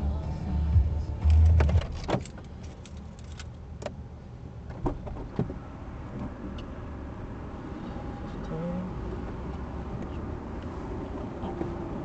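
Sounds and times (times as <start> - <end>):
low steady rumble: 0.0 - 4.8.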